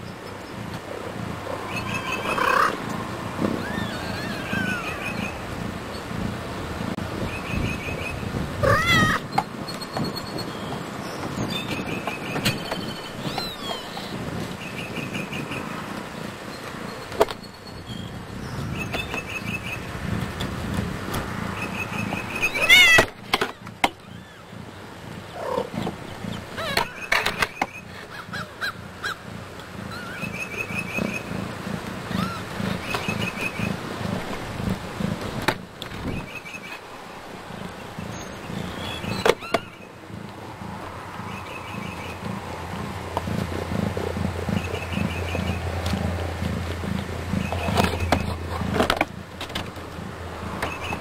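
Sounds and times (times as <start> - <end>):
high rising cat mew: 8.6 - 9.3.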